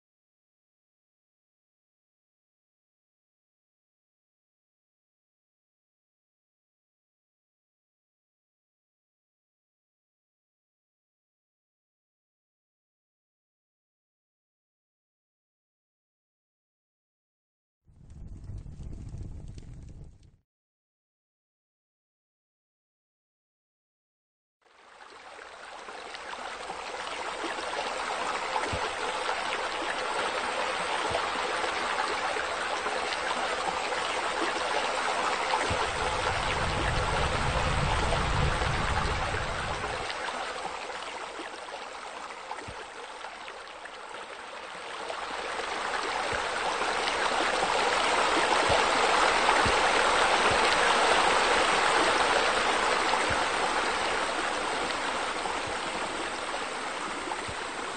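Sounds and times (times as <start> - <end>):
low rumble: 18.0 - 20.3
water splashing from wall spouts: 24.8 - 57.9.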